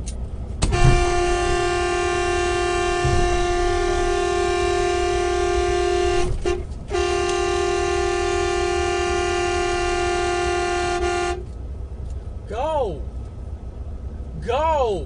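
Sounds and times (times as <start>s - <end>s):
vehicle horn blast: 0.6s - 11.6s.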